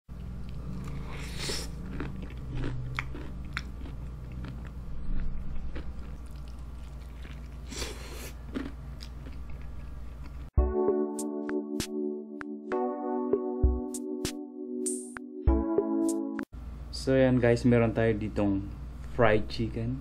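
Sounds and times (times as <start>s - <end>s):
person chewing crispy chicken: 0.2s - 10.5s.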